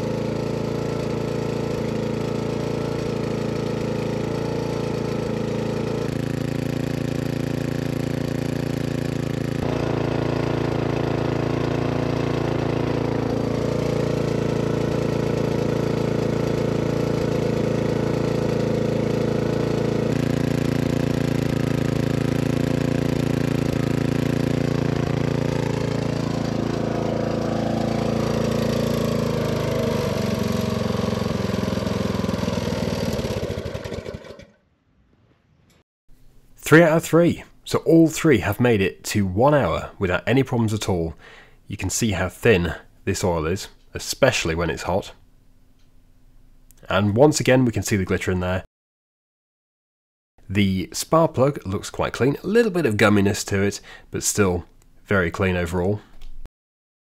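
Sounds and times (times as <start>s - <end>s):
small engine running: 0.0s - 34.7s.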